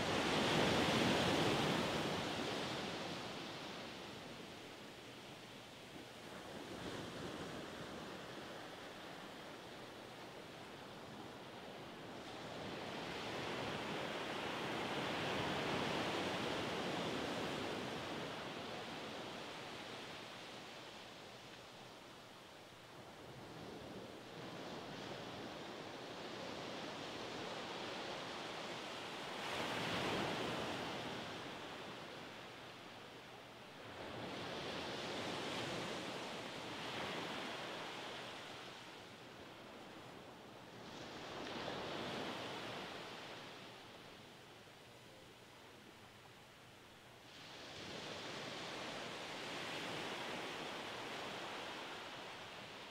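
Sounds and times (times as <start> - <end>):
surf washing up beach: 26.7 - 32.5.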